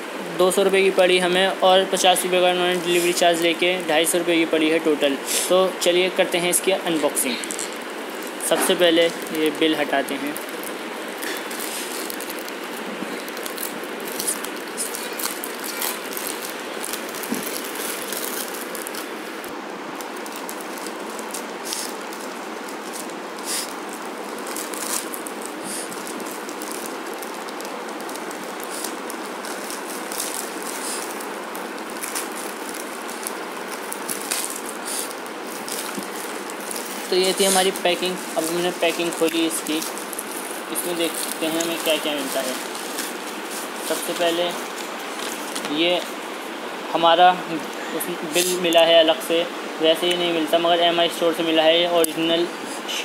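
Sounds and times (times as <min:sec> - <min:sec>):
plastic mailer bag crinkling: 0:05.8 - 0:46.2.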